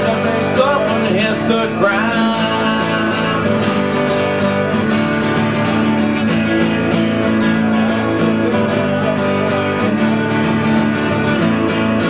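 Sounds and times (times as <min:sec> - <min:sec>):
strummed acoustic guitar: 0:00.0 - 0:12.0.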